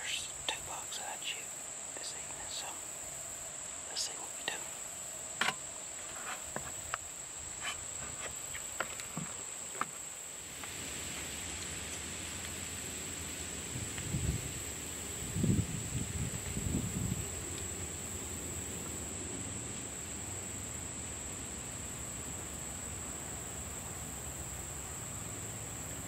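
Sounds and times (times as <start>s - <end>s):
high-pitched insect chorus: 0.0s - 26.0s
wind rustling leaves: 0.0s - 26.0s.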